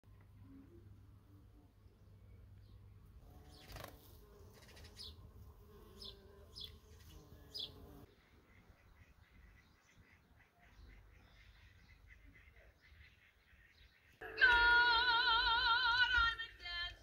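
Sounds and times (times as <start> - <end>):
insect buzzing: 3.2 - 8.1.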